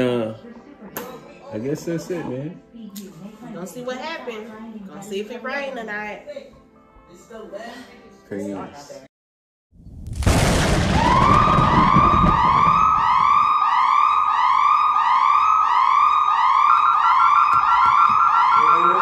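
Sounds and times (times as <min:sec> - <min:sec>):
alarm siren yelping: 0:10.9 - 0:19.0.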